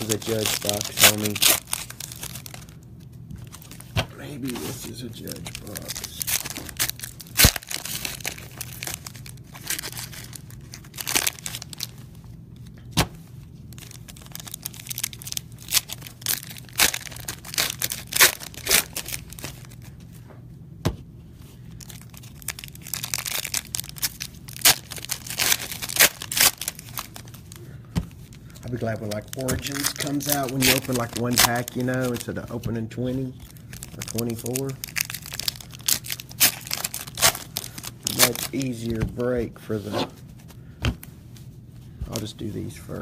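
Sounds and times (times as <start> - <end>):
foil wrappers crinkling and tearing: 0.0 - 12.7, 13.7 - 20.0, 21.7 - 39.0.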